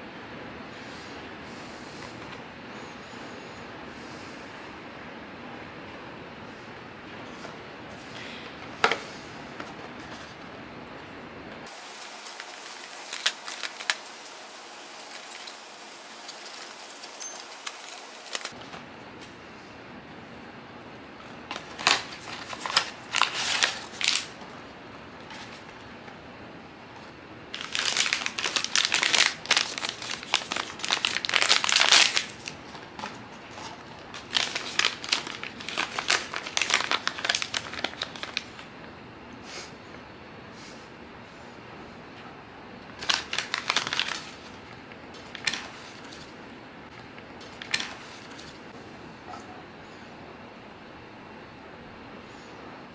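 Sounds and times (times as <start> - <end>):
foil bag crinkling: 11.6 - 18.6, 21.4 - 24.5, 27.5 - 38.7, 43.0 - 44.6, 45.2 - 46.4, 47.4 - 48.6.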